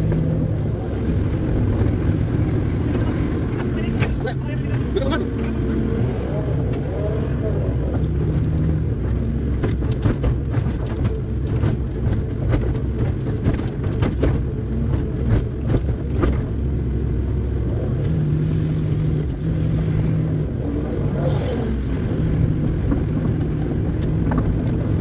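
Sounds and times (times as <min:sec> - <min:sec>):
sharp knocks and clatters: 0:08.4 - 0:16.6.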